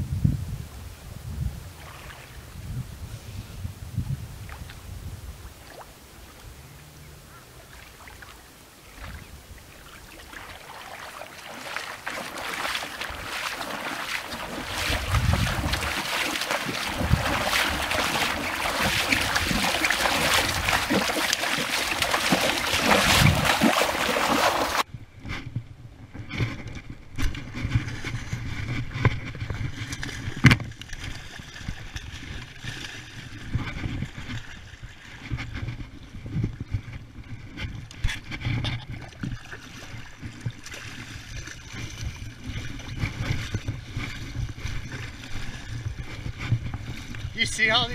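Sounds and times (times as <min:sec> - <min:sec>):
wading through shallow water: 0:01.7 - 0:03.4, 0:04.2 - 0:25.6, 0:26.2 - 0:47.9
fish splashing and thrashing: 0:09.0 - 0:24.9, 0:27.3 - 0:47.4.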